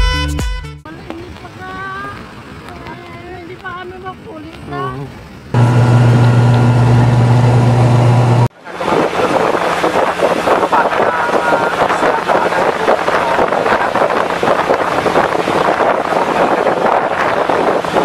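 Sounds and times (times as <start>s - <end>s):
water and wind rushing: 0.9s - 18.0s
propeller drone in cabin: 5.5s - 18.0s.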